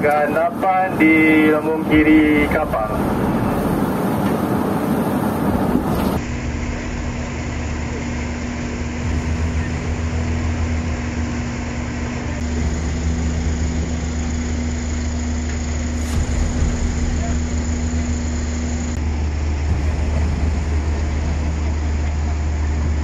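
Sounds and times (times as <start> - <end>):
boat engine humming: 0.0 - 23.0
wind and water rushing: 0.9 - 6.7.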